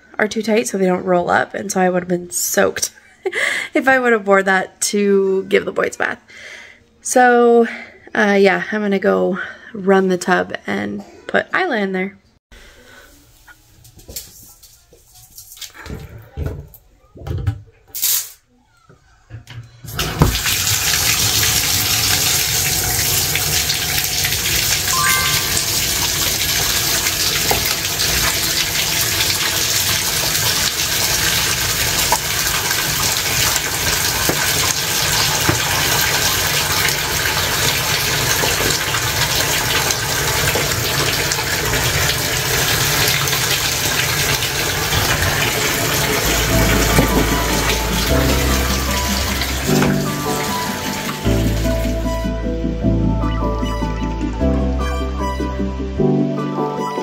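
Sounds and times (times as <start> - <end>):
water pouring into bathtub: 19.9 - 52.1
music: 24.9 - 26.7, 46.0 - 57.0.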